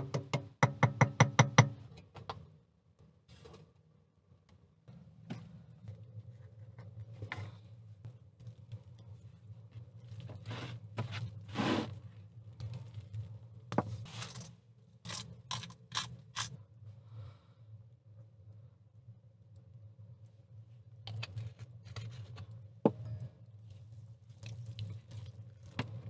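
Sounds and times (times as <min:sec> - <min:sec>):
rustling and scraping: 0:09.7 - 0:16.6.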